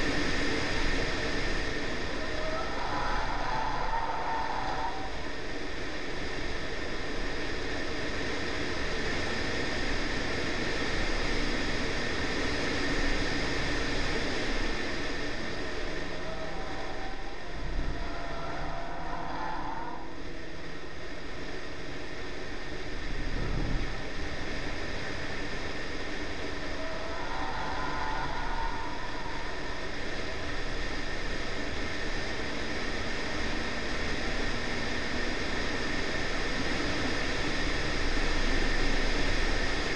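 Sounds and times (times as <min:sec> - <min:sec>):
wind and road noise: 0:00.0 - 0:39.9
car engine running: 0:09.8 - 0:26.7
brief low rumbles: 0:23.1 - 0:24.3.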